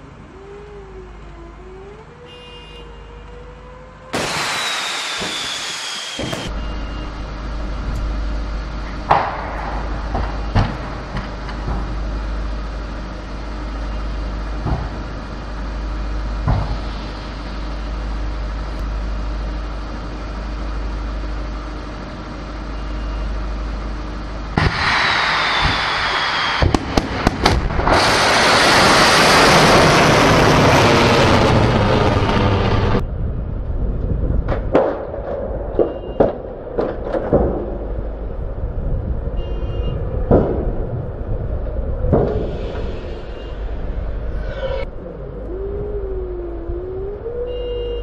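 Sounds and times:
rocket motor roaring: 0:03.2 - 0:21.3, 0:23.2 - 0:34.5, 0:40.0 - 0:48.0
loud hiss with falling whistle: 0:04.1 - 0:07.1, 0:24.6 - 0:26.9, 0:42.5 - 0:43.7
sharp cracks: 0:04.2 - 0:06.6, 0:24.6 - 0:29.0
steady low rumble: 0:04.2 - 0:48.0.

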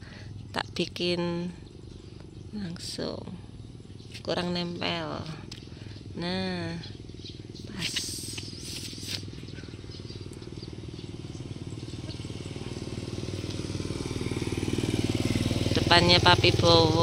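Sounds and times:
small motorcycle engine: 0:05.6 - 0:17.0
brief scratchy noises: 0:08.3 - 0:09.3.

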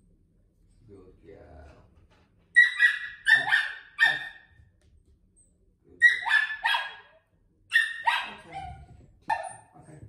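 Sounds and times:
small dog barking: 0:02.6 - 0:04.5, 0:06.0 - 0:09.7.

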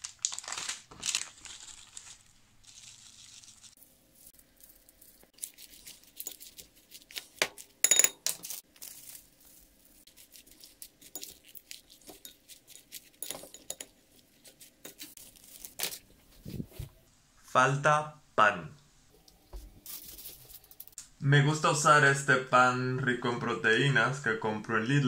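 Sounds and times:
leaves rustling: 0:00.0 - 0:07.4, 0:08.4 - 0:13.2, 0:14.5 - 0:17.0
utensil clinking against glass: 0:07.8 - 0:08.5, 0:13.2 - 0:13.9
utensil tapping and scraping bowl: 0:10.6 - 0:15.2.

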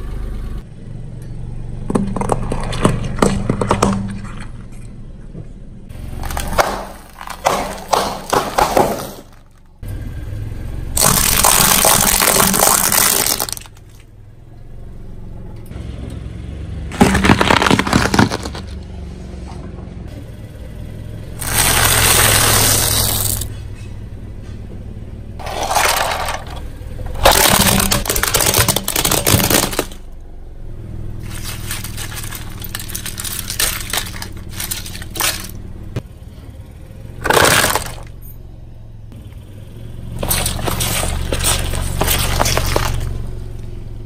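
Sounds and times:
low engine hum: 0:00.0 - 0:44.0
car tyre crushing objects: 0:01.8 - 0:09.8, 0:10.9 - 0:14.2, 0:16.8 - 0:19.0, 0:21.3 - 0:23.9, 0:25.4 - 0:38.4, 0:39.1 - 0:44.0
cracking and breaking: 0:06.1 - 0:09.8, 0:11.0 - 0:14.0, 0:16.9 - 0:18.8, 0:21.4 - 0:23.5, 0:25.4 - 0:30.0, 0:31.2 - 0:35.7, 0:37.2 - 0:38.1, 0:40.2 - 0:43.6.

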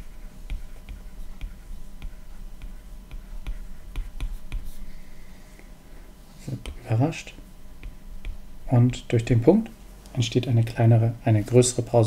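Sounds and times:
faint steady hum: 0:00.0 - 0:12.0
stylus tapping on glass screen: 0:07.8 - 0:08.4.

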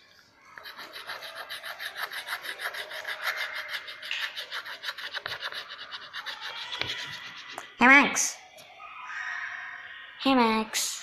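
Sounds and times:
chalk scraping on a blackboard: 0:00.6 - 0:07.7.

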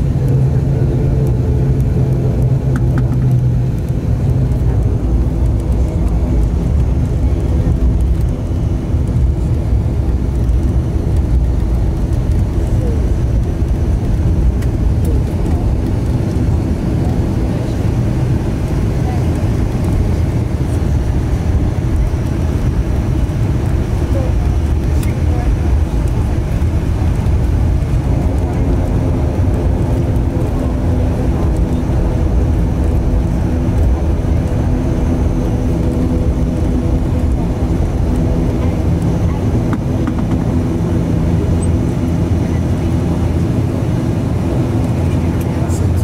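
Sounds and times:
turboprop engines droning: 0:00.0 - 0:46.0.

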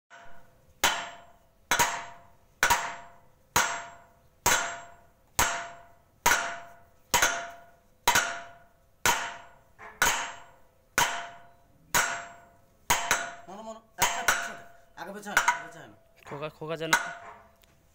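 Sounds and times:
sledgehammer ringing on steel: 0:00.1 - 0:16.0, 0:16.8 - 0:17.5.

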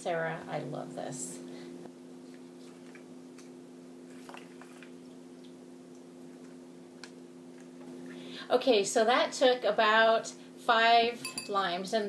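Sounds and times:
steady low hum: 0:00.0 - 0:12.0
juice squishing: 0:04.1 - 0:07.8.

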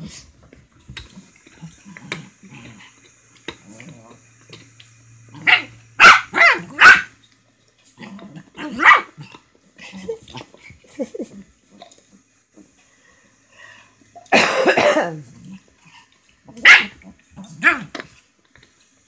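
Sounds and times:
small dogs barking: 0:05.3 - 0:07.2, 0:07.9 - 0:10.7, 0:14.2 - 0:18.2.

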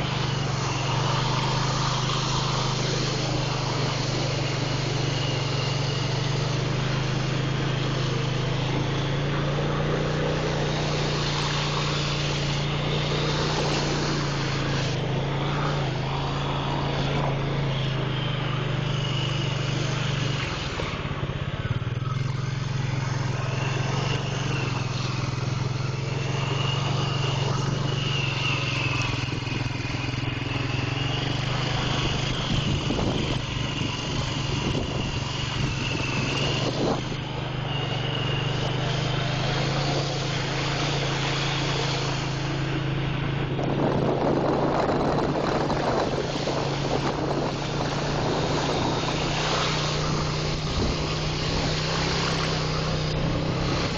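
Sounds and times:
engine running steadily: 0:00.0 - 0:53.9
high wavering whine: 0:00.0 - 0:53.9.

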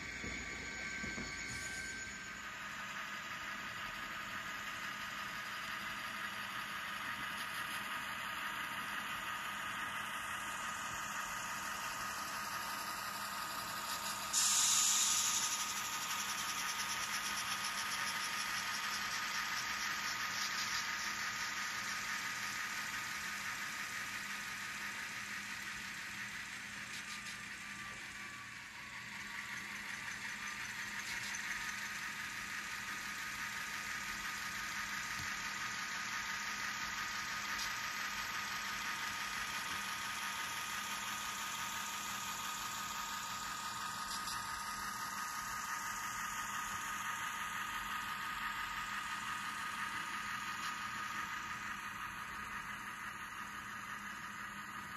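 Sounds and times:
diesel engine sound from tiny speaker: 0:00.0 - 0:54.9
short burst of hiss: 0:14.4 - 0:15.6.

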